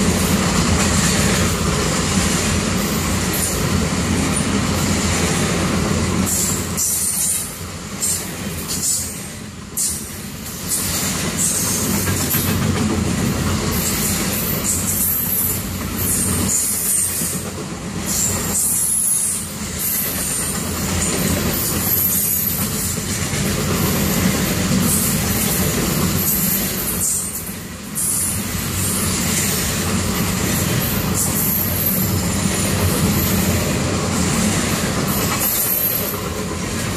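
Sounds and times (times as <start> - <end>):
freight train wheels rumbling: 0.0 - 36.9
high-pitched wheel squeal: 35.2 - 36.2.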